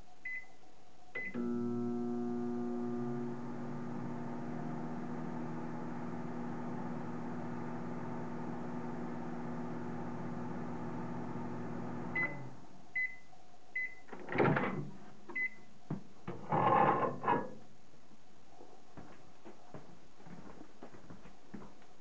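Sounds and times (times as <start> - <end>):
microwave short beeps: 1.2 - 1.5, 12.2 - 14.1
microwave oven humming: 1.2 - 12.7.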